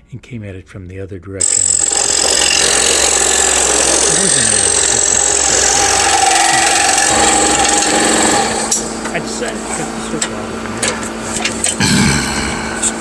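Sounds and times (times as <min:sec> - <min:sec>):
scroll saw cutting wood: 0:01.4 - 0:09.1.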